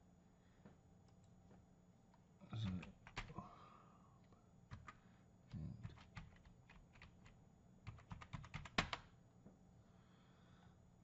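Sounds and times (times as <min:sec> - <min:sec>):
keyboard typing: 0:02.6 - 0:03.3, 0:04.7 - 0:05.0, 0:05.8 - 0:09.1.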